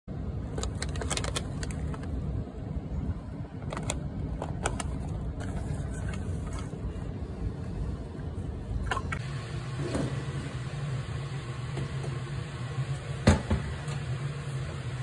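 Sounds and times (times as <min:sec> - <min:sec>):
steady low rumble: 0:00.1 - 0:09.5
plastic bag crinkling: 0:00.5 - 0:02.2.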